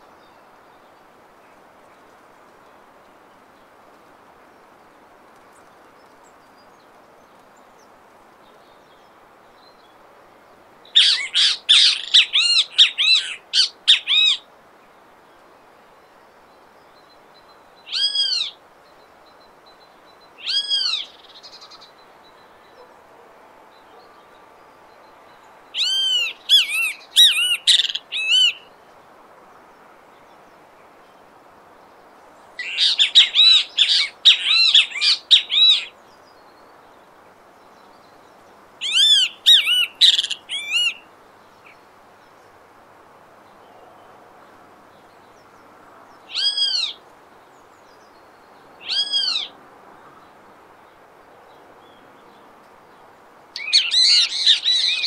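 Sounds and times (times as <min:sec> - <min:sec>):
bird calling: 0:11.0 - 0:14.4, 0:17.9 - 0:18.6, 0:20.4 - 0:24.4, 0:25.3 - 0:28.8, 0:32.6 - 0:36.0, 0:38.8 - 0:41.8, 0:46.3 - 0:47.0, 0:48.8 - 0:49.6, 0:53.6 - 0:55.0.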